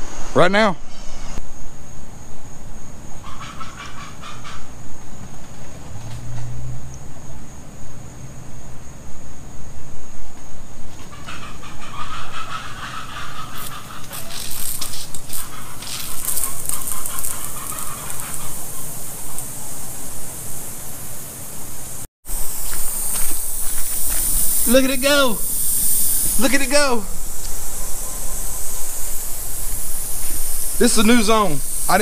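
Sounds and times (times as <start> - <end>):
sprinkler spraying hiss: 12.4 - 32.0.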